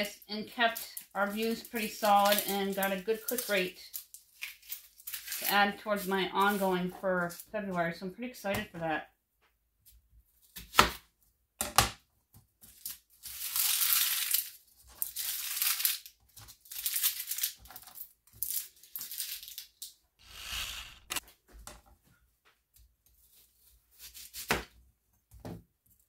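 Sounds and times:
onion skin peeling crackle: 0.7s - 5.5s, 12.6s - 21.2s.

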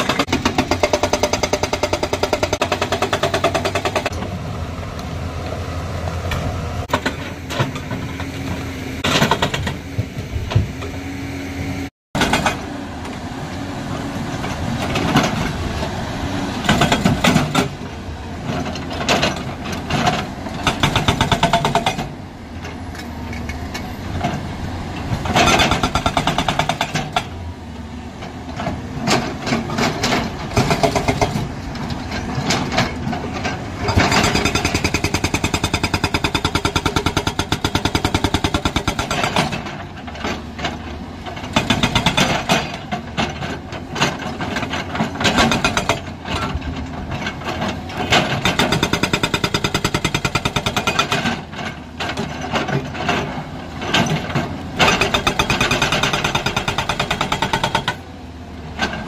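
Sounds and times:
hydraulic breaker hammering rock: 0.0s - 4.2s, 9.0s - 10.8s, 12.2s - 12.7s, 20.6s - 22.2s, 25.3s - 27.4s, 29.7s - 31.5s, 33.8s - 39.8s, 41.4s - 42.9s, 45.0s - 46.6s, 48.0s - 51.5s, 53.9s - 58.0s.

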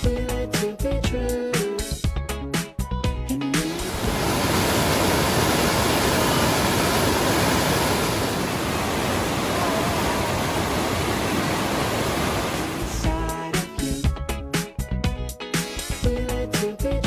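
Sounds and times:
white water rushing over boulders: 3.6s - 13.2s.

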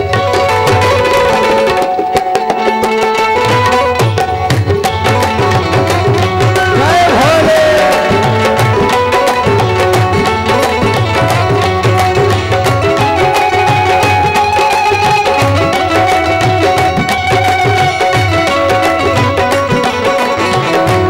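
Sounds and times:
tabla playing rhythm: 0.0s - 21.0s
sustained held chords: 0.6s - 13.8s.

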